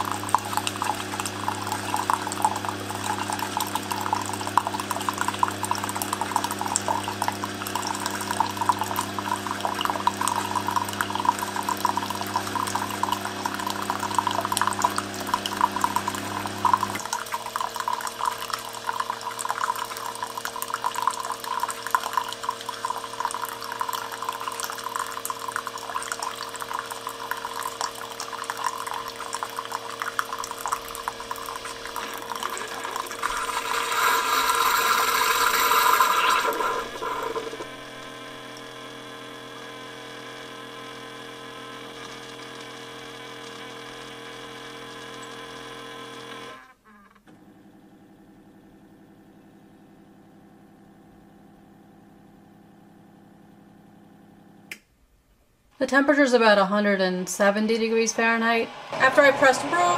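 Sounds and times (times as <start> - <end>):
low pump hum: 0.0 - 35.7
coffee pouring into a mug: 0.0 - 38.7.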